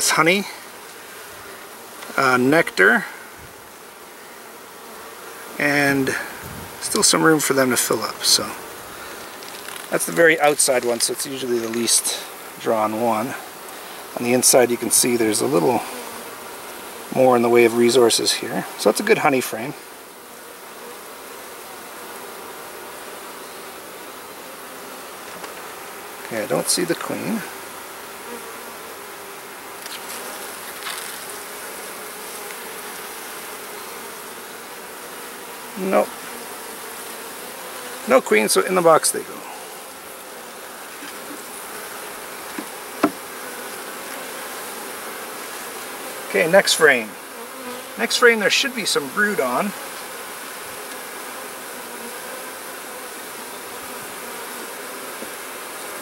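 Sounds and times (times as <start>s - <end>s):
bees buzzing: 0.0s - 56.0s.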